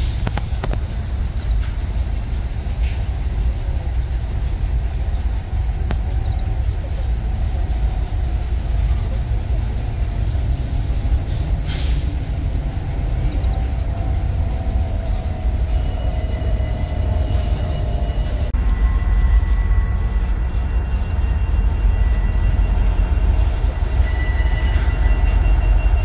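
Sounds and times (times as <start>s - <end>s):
freight train wheels rumbling: 0.0s - 26.0s
faint thin squeal: 15.8s - 26.0s.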